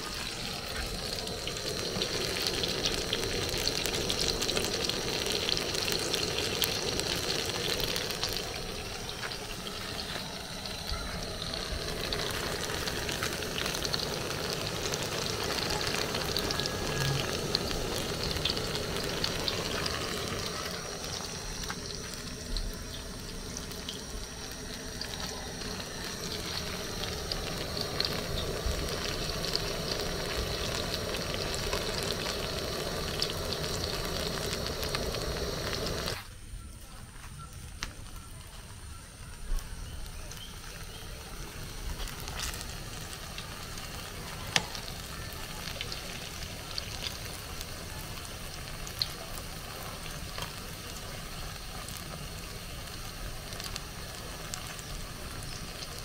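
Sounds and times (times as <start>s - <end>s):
dough deep-frying in hot oil: 0.0s - 56.0s.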